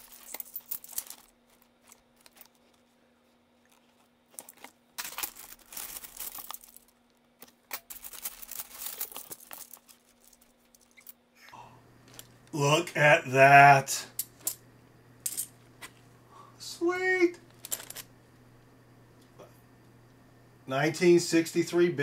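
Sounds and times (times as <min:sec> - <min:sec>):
coins clicking together: 0:00.0 - 0:01.3, 0:15.2 - 0:15.5, 0:17.5 - 0:18.1
plastic bag crinkling: 0:00.0 - 0:03.0, 0:03.6 - 0:11.1.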